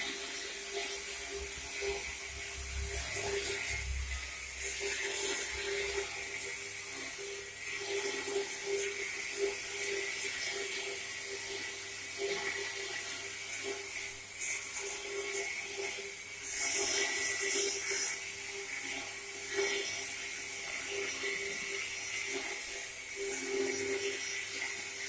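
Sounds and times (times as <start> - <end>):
motor and chain drive whine: 0.0 - 25.0.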